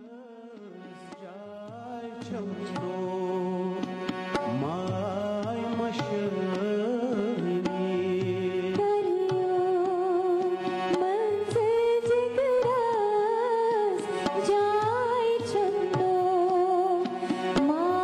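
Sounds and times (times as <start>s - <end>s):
man singing: 0.0s - 9.5s
harmonium: 0.0s - 18.0s
tabla strokes: 3.6s - 18.0s
woman singing: 8.5s - 18.0s.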